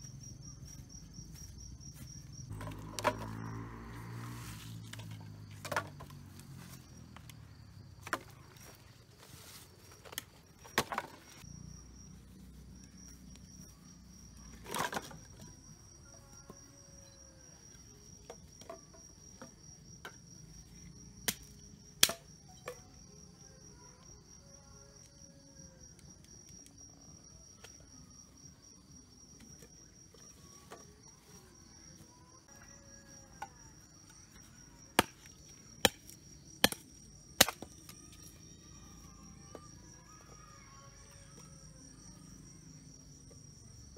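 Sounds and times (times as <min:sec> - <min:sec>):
crickets chirring: 0:00.0 - 0:43.9
axe chopping firewood: 0:21.2 - 0:22.3, 0:34.9 - 0:38.0.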